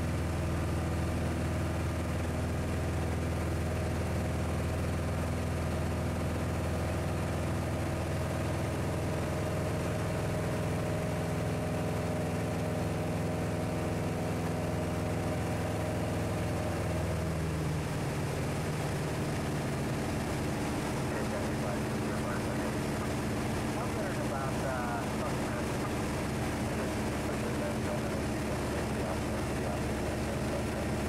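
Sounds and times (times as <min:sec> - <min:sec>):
aircraft engine and propeller droning: 0:00.0 - 0:31.0.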